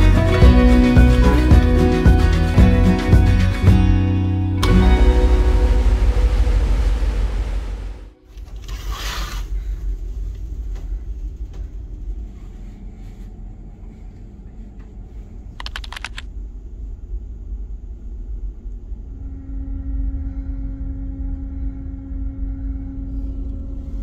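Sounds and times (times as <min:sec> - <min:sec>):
ship engines rumbling: 0:00.0 - 0:08.3
rapid clicks: 0:15.6 - 0:16.3.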